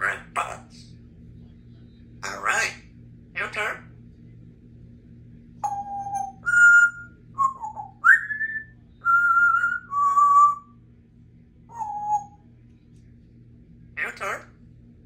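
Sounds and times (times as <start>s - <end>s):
parrot whistling a tune: 5.6s - 10.7s, 11.7s - 12.4s.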